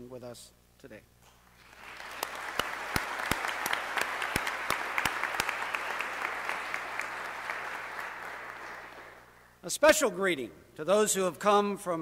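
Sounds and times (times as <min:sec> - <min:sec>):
sharp single claps: 0:01.2 - 0:09.3
audience applauding: 0:01.6 - 0:09.4.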